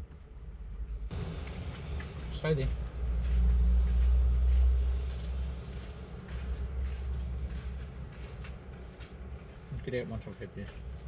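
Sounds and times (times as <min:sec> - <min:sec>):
deep vehicle engine rumble: 0:00.0 - 0:09.8.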